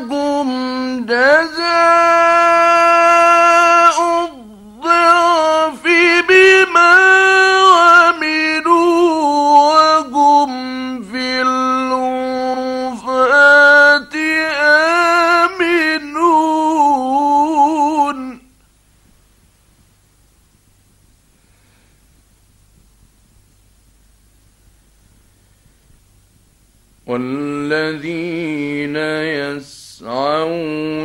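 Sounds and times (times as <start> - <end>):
man chanting melodically: 0.0 - 18.5, 27.1 - 31.0.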